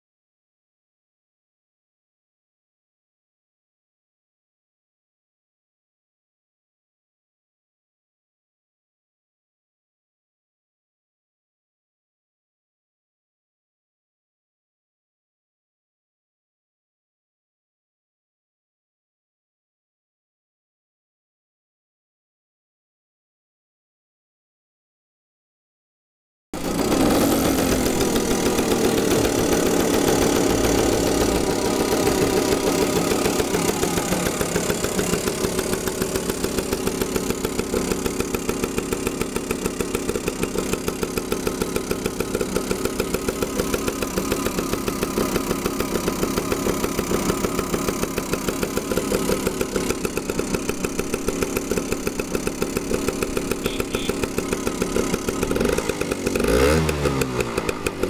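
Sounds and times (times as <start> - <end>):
scooter engine idling: 26.6 - 58.0.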